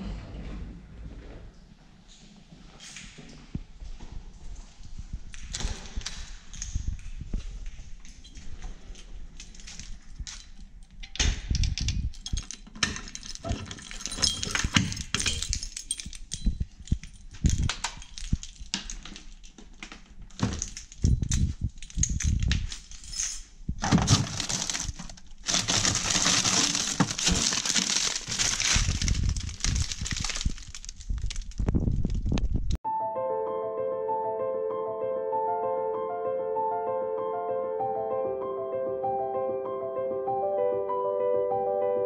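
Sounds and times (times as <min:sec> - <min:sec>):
handling knocks and clatters: 0:03.0 - 0:32.8
plastic bag crackling rustle: 0:23.8 - 0:32.7.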